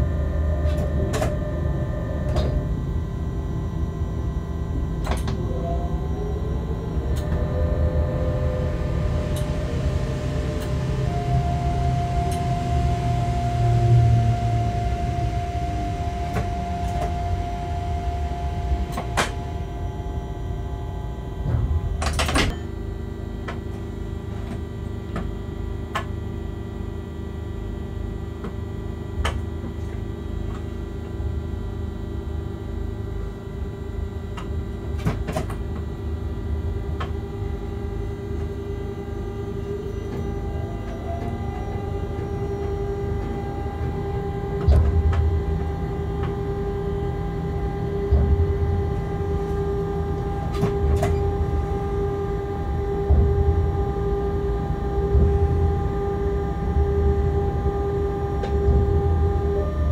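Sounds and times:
whining tone shifting in pitch: 0.0s - 23.1s, 35.8s - 59.9s
steady electrical tones: 0.0s - 25.8s, 35.6s - 59.9s
locomotive cab hum: 0.0s - 59.9s
train low rumble: 0.0s - 59.9s.

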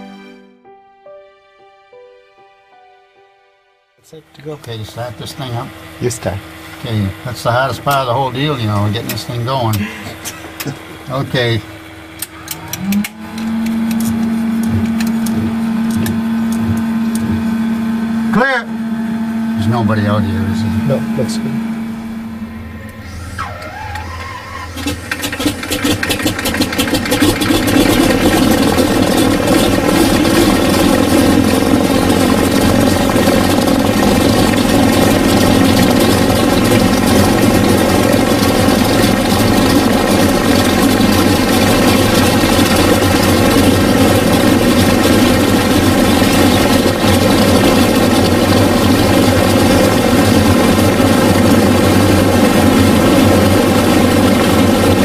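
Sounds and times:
radial aircraft engines running: 4.0s - 55.0s
engine cranking clicks: 23.6s - 50.5s.

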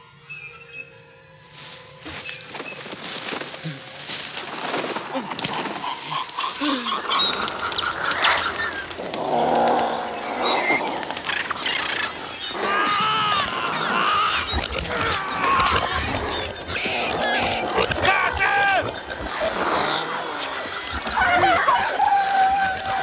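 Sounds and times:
creatures chirping and hissing: 4.6s - 23.0s.

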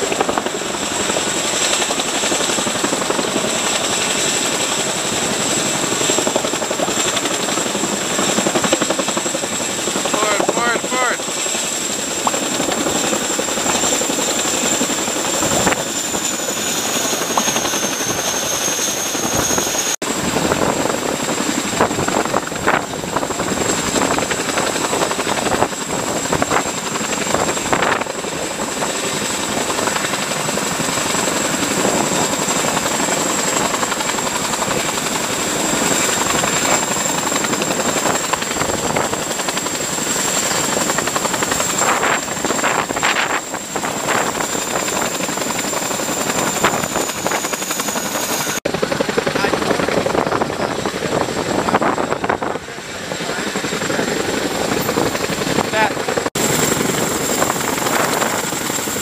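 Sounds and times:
helicopter rotor and engine noise: 0.0s - 59.0s
high turbine whine: 0.0s - 59.0s.

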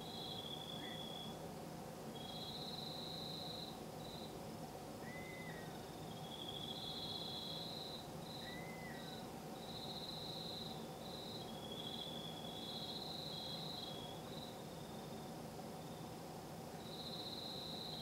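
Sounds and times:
crickets trilling: 0.0s - 1.4s, 2.0s - 18.0s
faint steady hum: 0.0s - 18.0s
night animal call: 0.1s - 1.4s, 5.0s - 9.2s, 11.4s - 15.2s.

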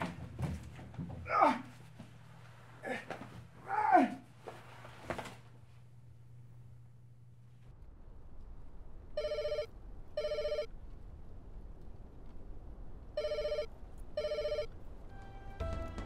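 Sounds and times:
steady low hum: 1.7s - 15.6s
telephone ringing: 9.2s - 10.7s, 13.2s - 14.7s.

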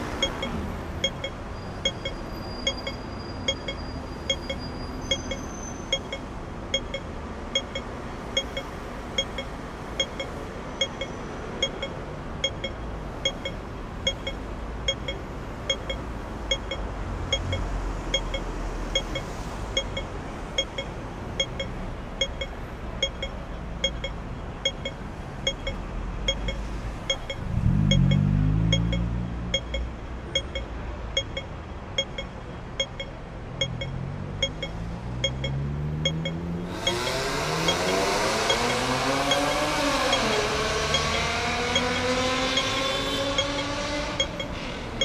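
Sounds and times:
crossing signal ticking: 0.0s - 45.0s
low traffic rumble: 0.0s - 45.0s
vehicle engine revving: 27.4s - 29.6s, 33.6s - 45.0s.

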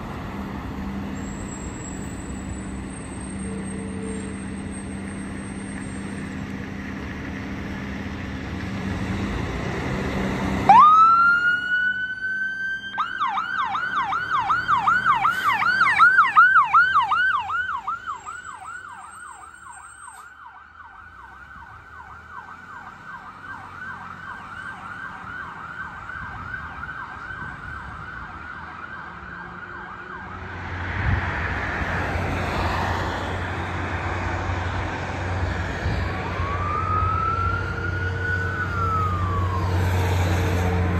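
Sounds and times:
road noise: 0.0s - 40.9s
fire engine siren wailing and yelping: 10.6s - 30.8s, 31.4s - 40.9s
second siren rising: 10.6s - 30.8s, 35.6s - 40.9s.

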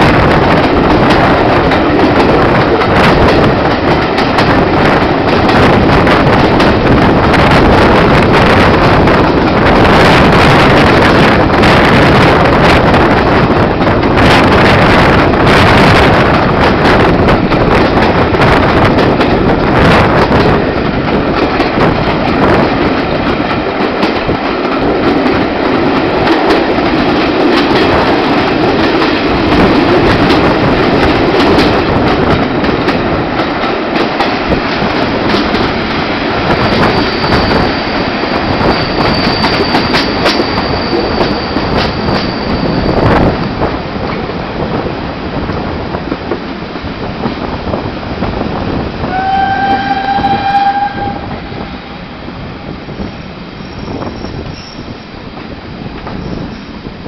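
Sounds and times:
train wheels clattering over joints: 0.2s - 44.3s
high wheel squeal: 38.8s - 43.2s, 53.6s - 55.1s.

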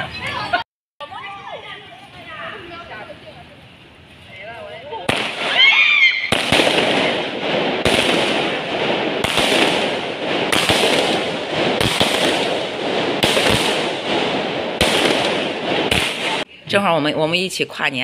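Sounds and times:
firework hissing and crackling: 5.0s - 16.5s.

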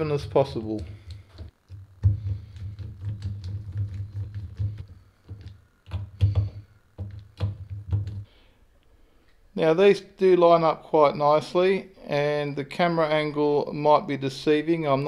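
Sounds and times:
tool handling knocks and rubbing: 0.0s - 8.3s.

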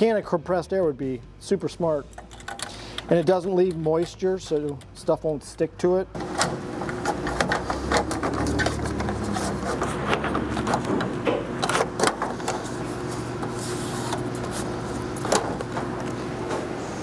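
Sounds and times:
low mechanical hum: 0.0s - 17.0s
metal parts clicking and clanking: 2.1s - 5.0s.

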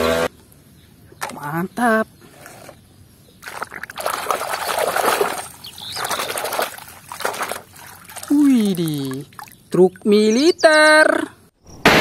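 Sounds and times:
water sloshing in plastic basin: 3.4s - 9.6s.

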